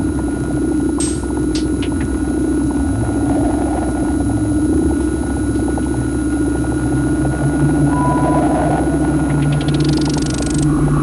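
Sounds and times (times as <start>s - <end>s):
low fluttering synth drone: 0.0s - 11.0s
thin high synth tone: 7.8s - 11.0s.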